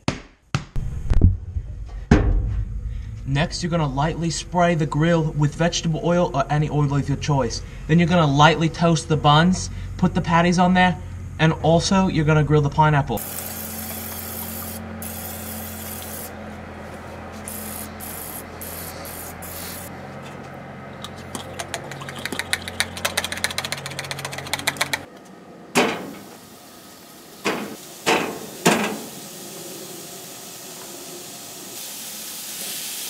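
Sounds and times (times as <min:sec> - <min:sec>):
low hum: 0:00.8 - 0:27.4
oil sprayer clicking: 0:13.2 - 0:16.3, 0:21.0 - 0:25.1
patties hitting hot grill: 0:25.7 - 0:26.4, 0:27.4 - 0:29.2.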